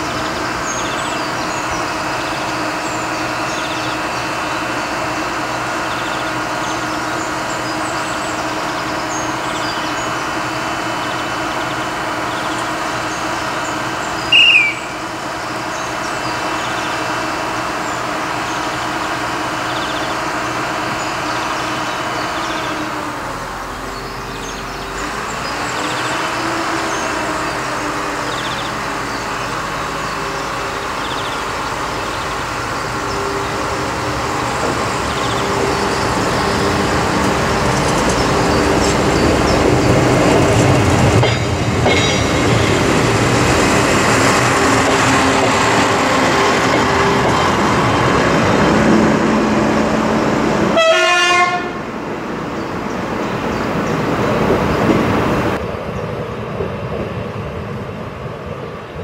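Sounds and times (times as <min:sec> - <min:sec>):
diesel railcar engine idling: 0:00.0 - 0:59.0
short high-pitched sound: 0:14.3 - 0:15.0.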